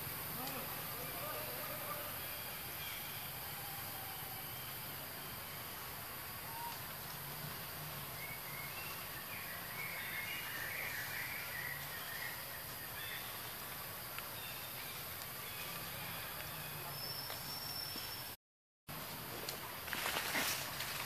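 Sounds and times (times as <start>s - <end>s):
forest background hiss: 0.0s - 21.0s.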